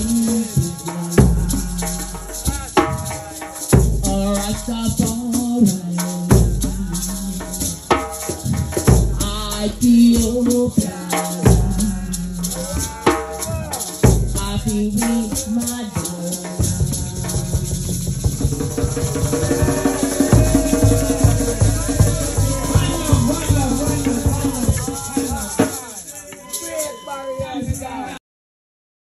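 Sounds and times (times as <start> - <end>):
deep bass drum: 0.0 - 3.1, 3.7 - 5.4, 6.3 - 10.8, 11.5 - 15.6, 16.6 - 25.4
woman singing a chant: 0.0 - 3.4, 9.2 - 13.2
hand drum strokes: 0.0 - 26.5.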